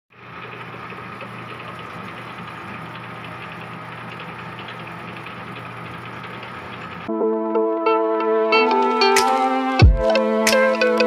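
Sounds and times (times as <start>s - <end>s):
metal lathe humming: 0.1s - 7.1s.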